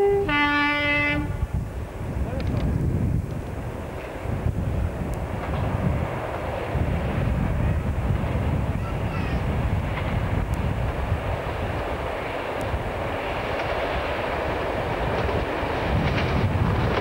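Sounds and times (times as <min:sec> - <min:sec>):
diesel locomotive engines rumbling: 0:00.0 - 0:17.0
train wheels clicking over rail joints: 0:02.3 - 0:07.4, 0:09.9 - 0:17.0.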